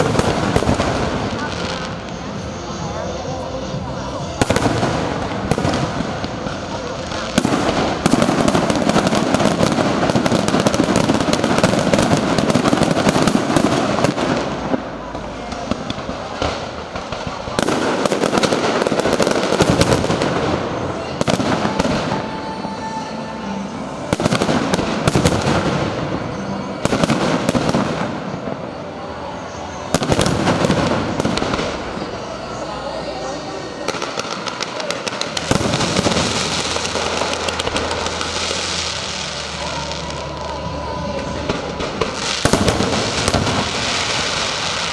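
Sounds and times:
fireworks shell bursts and crackle: 33.9s - 39.6s.

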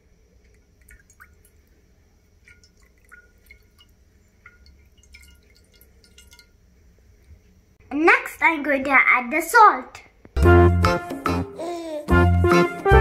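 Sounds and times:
water dripping into glass dish: 0.4s - 1.7s, 2.4s - 6.6s.

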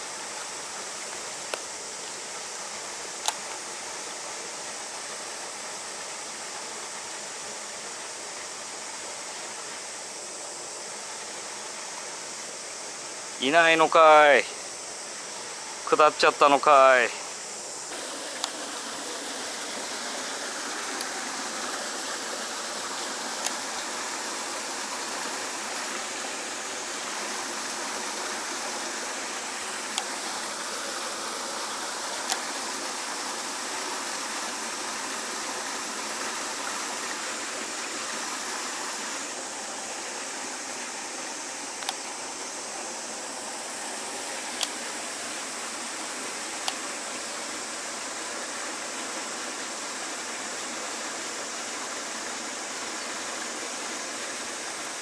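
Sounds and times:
water rushing into a rocky pool: 17.8s - 55.0s.

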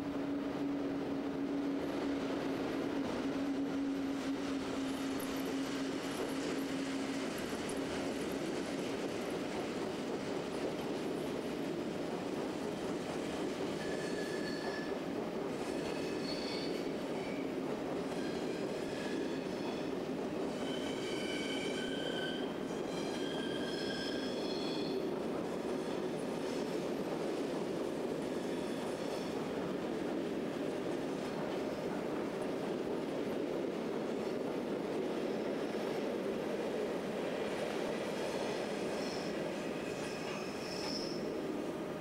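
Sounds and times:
train rolling with low rumble: 0.0s - 42.0s
train wheels squealing: 3.9s - 7.8s, 13.7s - 15.0s, 15.6s - 26.7s, 28.2s - 29.5s, 38.1s - 41.5s.

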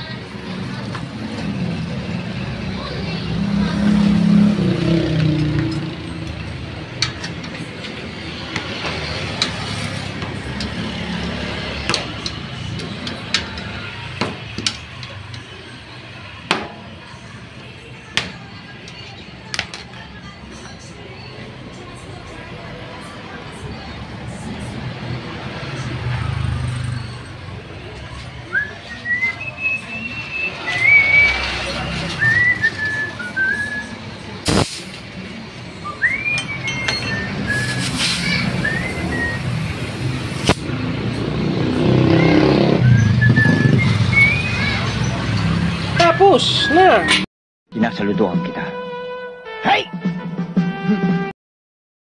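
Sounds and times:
person whistling a tune: 28.5s - 31.4s, 32.2s - 34.0s, 35.8s - 37.8s, 38.6s - 39.6s, 42.2s - 44.8s
sharp metal clinks: 36.4s - 37.9s.

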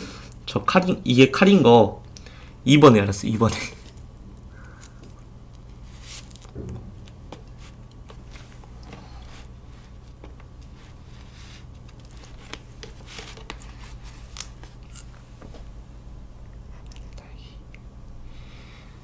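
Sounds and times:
low hum: 6.4s - 12.2s.

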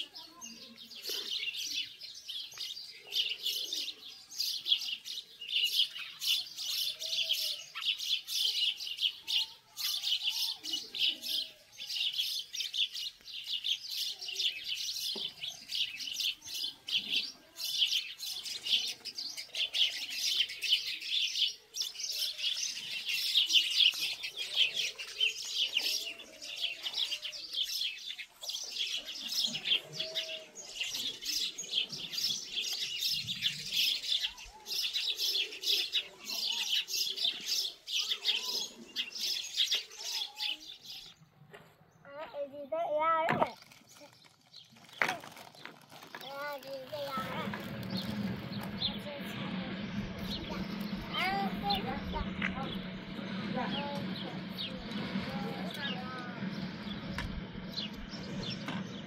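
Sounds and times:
small birds chirping rapidly: 0.0s - 41.4s, 42.0s - 59.0s.

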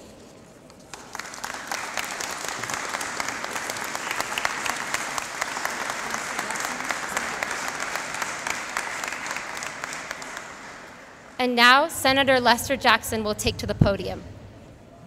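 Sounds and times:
crowd applauding: 0.9s - 11.4s.

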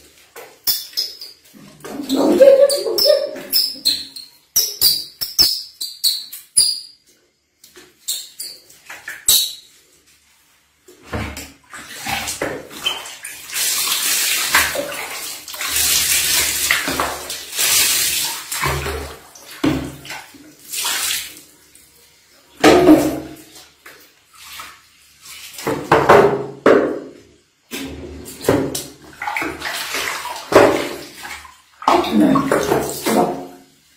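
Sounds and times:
water splashing into basin: 11.1s - 21.5s, 22.6s - 27.1s, 27.7s - 33.7s
water sloshing in basin: 27.7s - 33.6s.

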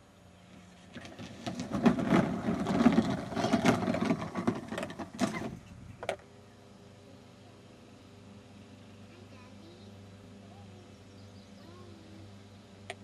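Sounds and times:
plastic wheels rumbling on track: 0.8s - 5.6s.

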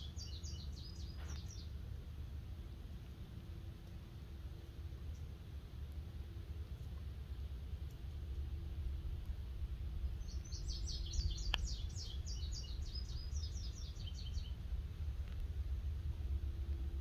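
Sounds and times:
songbird chirping: 0.0s - 1.8s, 10.0s - 14.7s
low background rumble: 0.0s - 17.0s.

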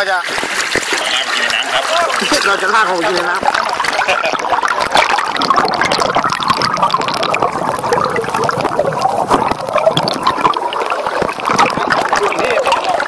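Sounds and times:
water gurgling and bubbling: 0.0s - 13.0s.

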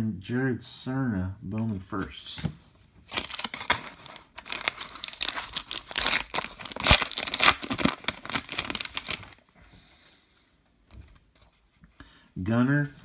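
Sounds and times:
plastic wrapper tearing and crinkling: 3.1s - 9.4s.

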